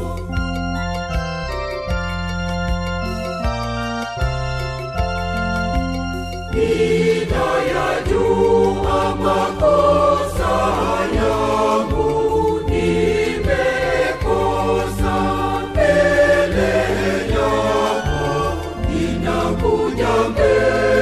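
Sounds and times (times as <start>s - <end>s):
choir singing a hymn: 0.0s - 0.8s, 6.5s - 21.0s.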